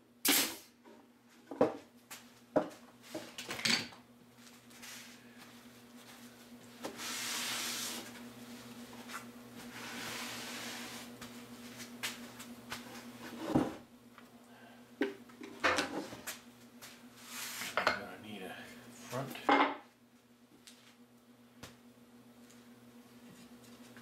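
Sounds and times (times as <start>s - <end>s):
hands scuffing over plywood: 7.9s - 13.7s.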